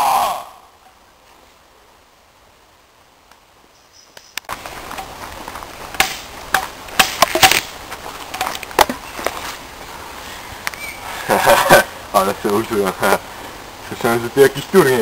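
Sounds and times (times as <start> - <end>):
steady outdoor hiss: 0.0 - 15.0
footsteps on leafy dirt path: 4.5 - 10.4.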